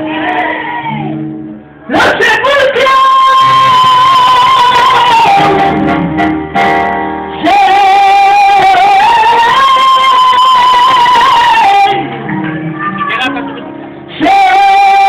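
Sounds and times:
acoustic guitar: 0.0 - 15.0
man singing long notes: 1.9 - 6.1, 7.3 - 15.0.

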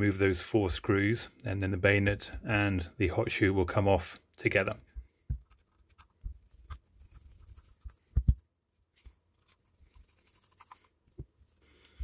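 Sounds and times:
small screwdriver scratching: 5.4 - 8.0.

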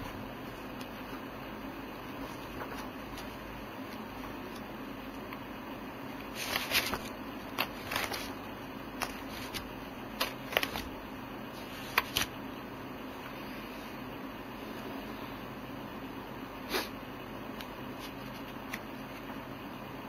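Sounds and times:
steady low hum: 0.0 - 20.0
paper rustling: 2.0 - 4.7, 6.2 - 11.0, 11.6 - 12.3, 17.9 - 19.4.

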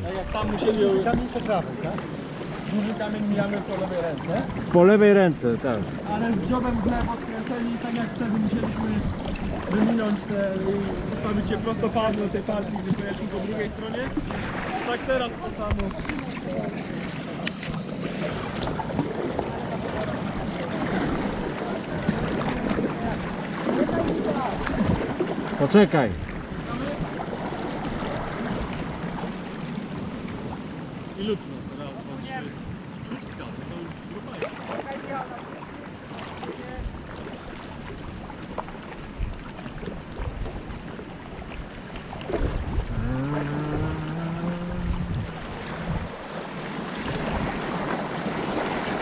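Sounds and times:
water splashing around a kayak: 0.0 - 49.0
wind buffeting microphone: 5.9 - 31.0, 39.0 - 49.0.

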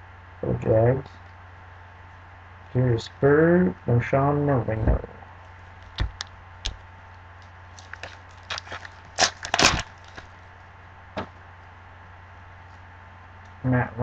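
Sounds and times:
low steady hum: 0.0 - 14.0
foil wrapper tearing and crinkling: 7.7 - 10.4.

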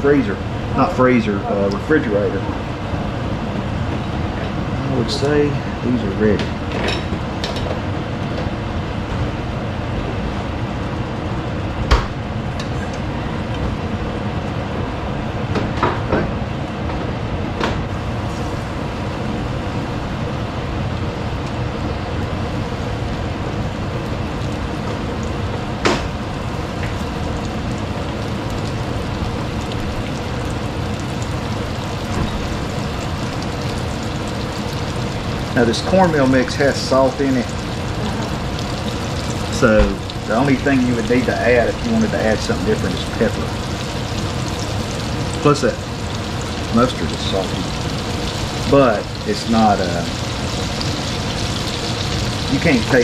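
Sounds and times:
oil sizzling in a skillet: 21.0 - 53.0.

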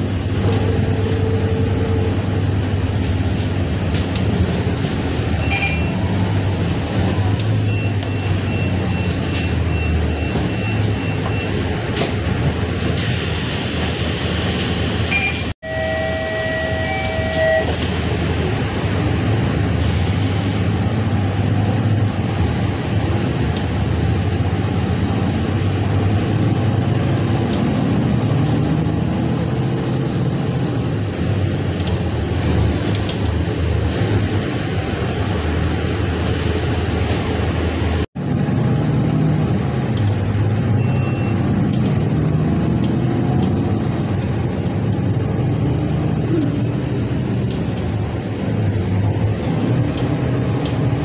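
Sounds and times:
bus engine drone and road noise: 0.0 - 51.0
two-tone electronic beep: 5.4 - 6.0, 7.6 - 11.6, 15.1 - 17.8, 40.8 - 41.5.

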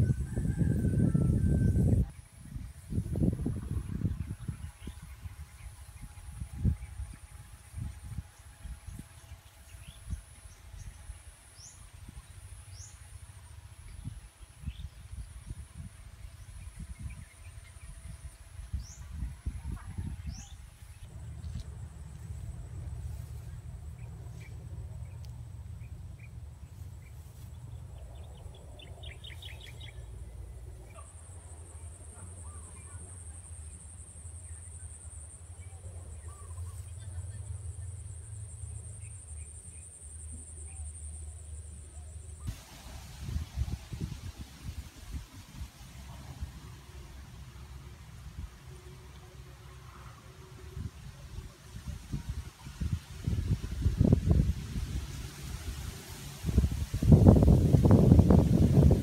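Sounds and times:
wind buffeting microphone: 0.0 - 10.9, 13.9 - 21.3, 42.5 - 46.7, 50.8 - 59.0
constant low rumble: 0.0 - 59.0.

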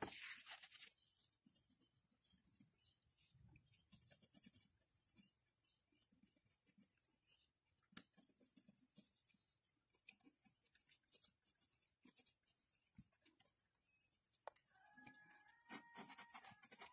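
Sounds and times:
pencil scratching on paper: 14.8 - 16.9.

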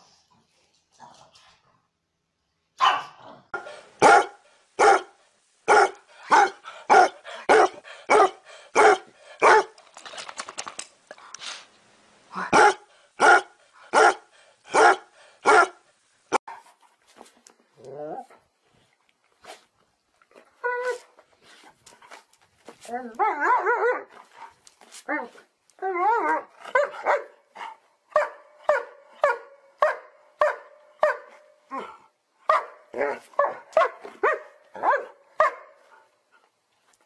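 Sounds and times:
dogs barking: 2.8 - 5.1, 5.7 - 9.7, 12.6 - 15.8, 26.7 - 27.4, 32.5 - 35.8.

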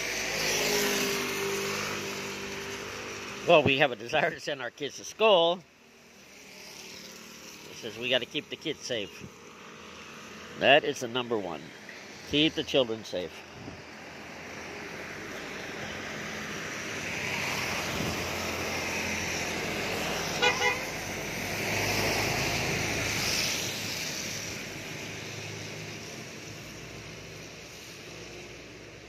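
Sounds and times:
traffic hissing on wet road: 0.0 - 29.0
vehicle horn toots: 20.4 - 21.0.

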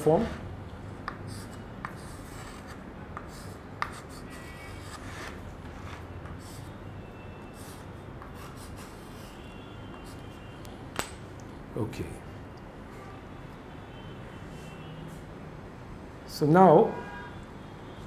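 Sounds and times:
chalk tapping: 1.0 - 6.7, 7.5 - 10.4
chalk scratching on slate: 1.1 - 6.8, 7.5 - 10.4.

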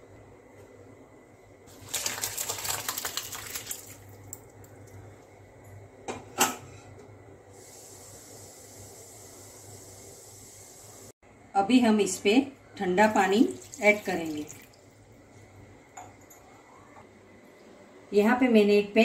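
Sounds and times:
liquid pouring into strainer: 1.7 - 4.4.

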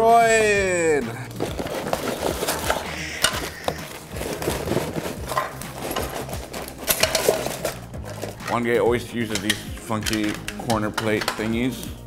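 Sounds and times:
plastic bags rustling and clattering: 1.1 - 11.8
paper manual crinkling: 1.2 - 8.7.

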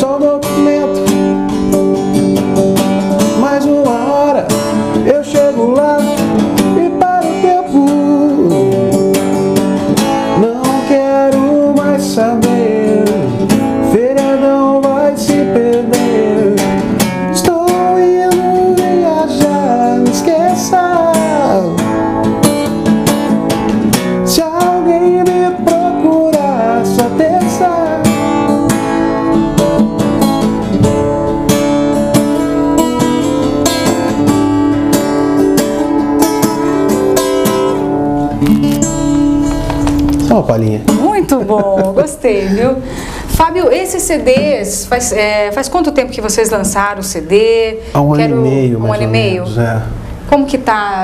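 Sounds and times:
person singing: 0.0 - 1.2, 3.3 - 9.0, 10.3 - 21.8, 24.3 - 28.2, 47.9 - 49.2
acoustic guitar strumming: 0.0 - 51.0.

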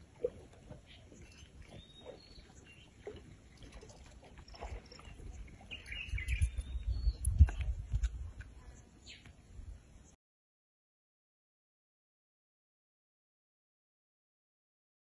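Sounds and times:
faint birds chirping: 0.2 - 10.2.

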